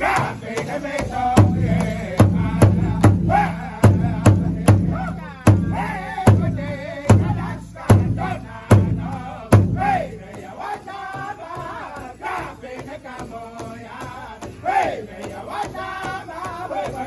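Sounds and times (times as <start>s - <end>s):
big drum beating: 0.0s - 10.5s
group singing high-pitched chant: 0.0s - 17.0s.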